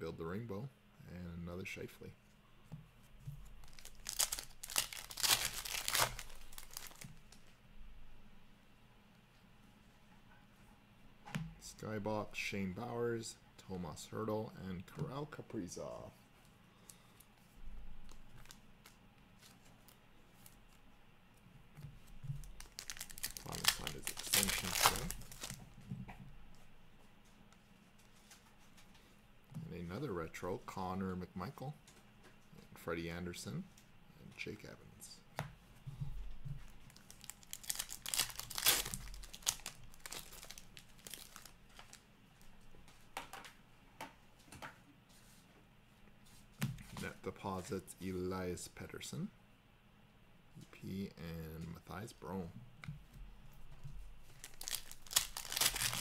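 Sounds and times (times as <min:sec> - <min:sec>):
trading cards handled: 0:03.4 - 0:07.4, 0:22.3 - 0:25.6, 0:36.9 - 0:42.0, 0:54.3 - 0:56.0
plastic card sleeve rustling: 0:03.4 - 0:07.5, 0:22.0 - 0:25.6, 0:36.8 - 0:43.0, 0:54.2 - 0:56.0
foil wrapper tearing and crinkling: 0:03.6 - 0:07.2, 0:22.4 - 0:25.6, 0:36.9 - 0:42.0, 0:54.3 - 0:56.0.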